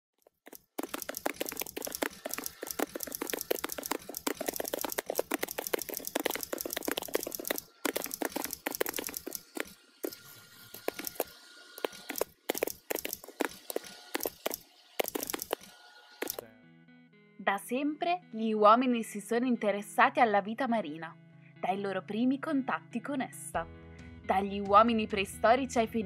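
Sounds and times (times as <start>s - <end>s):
typewriter keys clicking: 0.3s - 15.6s.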